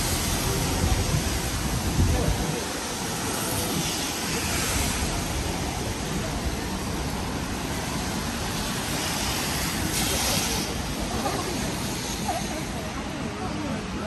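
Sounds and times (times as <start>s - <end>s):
rain hiss: 0.0s - 14.0s
traffic on wet street: 0.0s - 14.0s.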